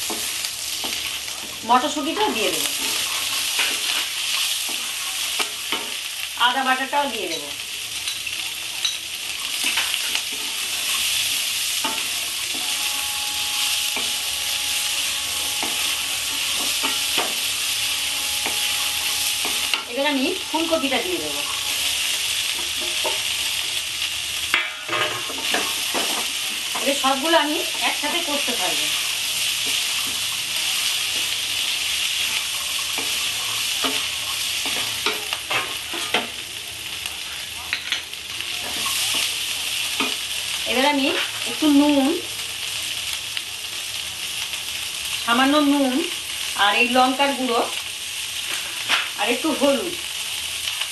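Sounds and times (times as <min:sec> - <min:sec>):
vegetables sizzling in oil: 0:00.0 - 0:50.9
spatula scraping and tapping pan: 0:15.4 - 0:19.9, 0:29.6 - 0:36.4.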